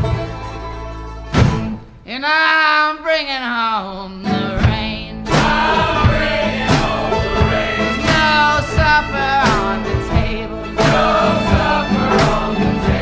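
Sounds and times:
folk-rock band: 0.0 - 13.0
voices singing: 4.3 - 13.0
steady drumbeat: 4.6 - 13.0.

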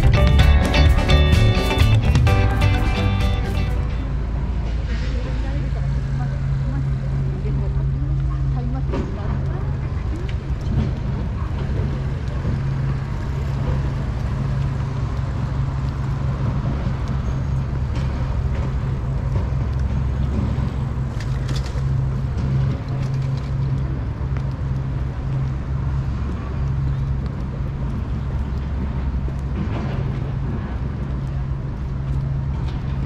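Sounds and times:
city background rumble: 0.0 - 33.0.

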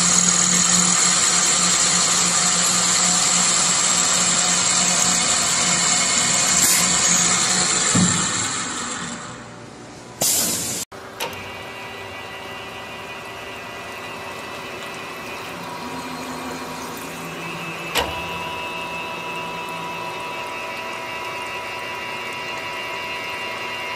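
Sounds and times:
coolant flowing: 0.0 - 9.4, 10.9 - 23.9
drilling head running: 0.0 - 9.5, 10.9 - 23.9
machining hum with high whines: 11.0 - 23.9.

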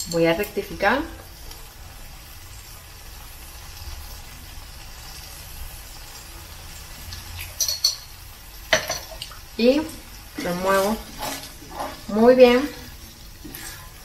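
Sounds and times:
skillet simmering hiss: 0.0 - 14.0
spoon clink: 7.6 - 8.1.

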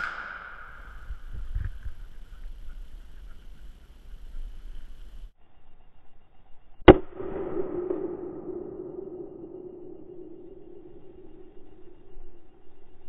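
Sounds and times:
gunshot echo: 0.0 - 1.2, 6.8 - 10.9.

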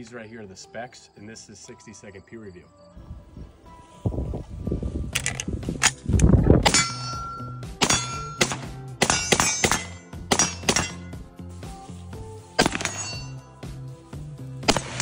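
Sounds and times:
steel targets ringing: 6.7 - 11.1, 12.6 - 13.5
rifle shots: 12.6 - 13.0, 14.6 - 15.0.

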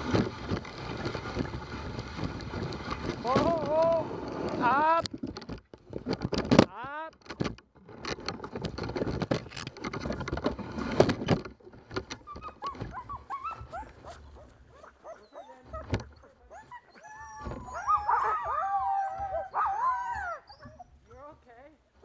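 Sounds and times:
scraping and rustling: 0.0 - 17.9
dogs whining and yipping: 12.1 - 21.4.

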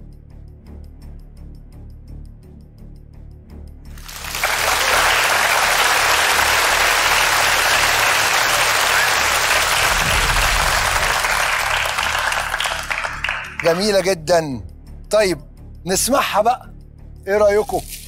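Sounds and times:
audience applauding: 3.9 - 14.1.

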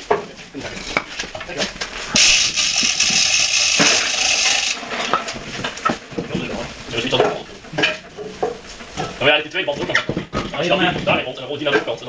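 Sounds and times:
loud hiss: 2.2 - 4.8
metallic clinks and clatter: 2.2 - 4.8.

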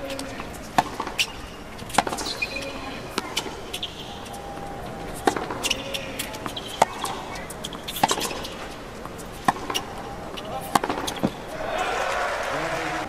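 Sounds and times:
tennis ball bouncing on court: 0.0 - 11.5
tennis ball struck by rackets: 0.1 - 4.1, 5.1 - 11.5.

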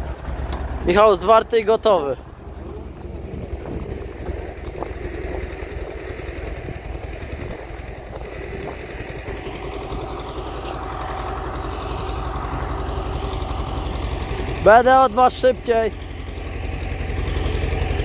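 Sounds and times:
tractor diesel engine throbbing: 0.0 - 18.0.

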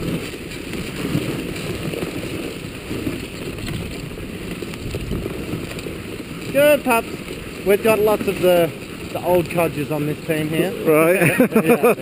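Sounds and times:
sled runners scraping over snow: 0.0 - 12.0
wind rumbling on microphone: 0.0 - 12.0.

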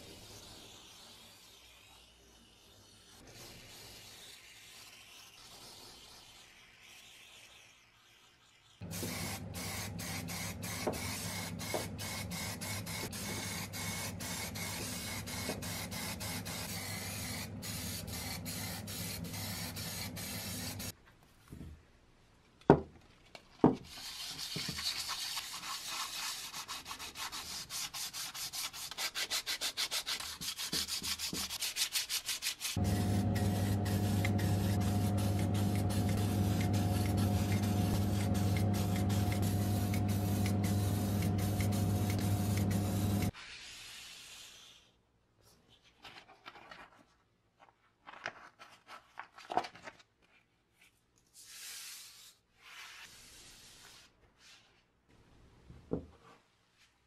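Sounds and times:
sandpaper rubbing metal: 0.2 - 20.9, 23.9 - 44.4
aerosol spray can hissing: 8.8 - 20.9, 32.8 - 43.3
low hum: 32.8 - 43.3.

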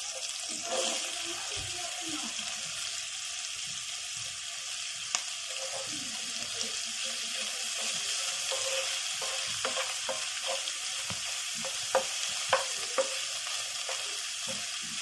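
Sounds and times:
onion sizzling in oil: 0.0 - 15.0
spatula ticking against pan: 8.4 - 15.0.

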